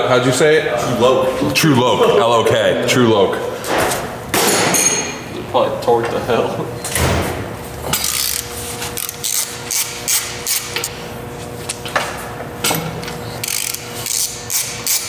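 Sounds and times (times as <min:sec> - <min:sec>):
hand ratchet clicking: 0:07.9 - 0:11.0, 0:13.4 - 0:15.0.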